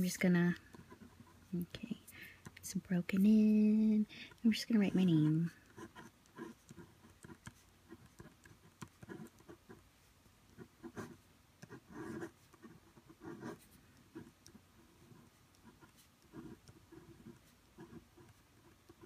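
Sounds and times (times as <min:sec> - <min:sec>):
pen scratching on paper: 0:00.7 - 0:01.6, 0:04.3 - 0:09.8, 0:10.5 - 0:19.0.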